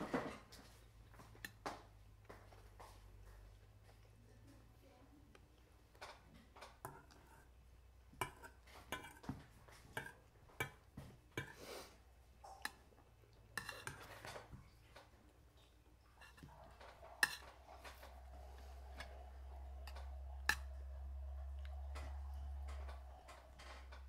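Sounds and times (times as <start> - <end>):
spoons clinking against bowls: 8.2 - 9.2, 13.5 - 14.4, 16.1 - 23.6
faint low hum: 12.0 - 24.0.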